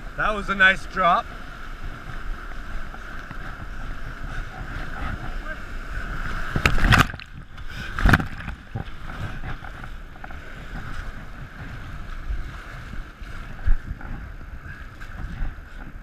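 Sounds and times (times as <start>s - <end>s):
rapids rushing and splashing: 0.0s - 16.0s
loud splash: 6.3s - 8.4s.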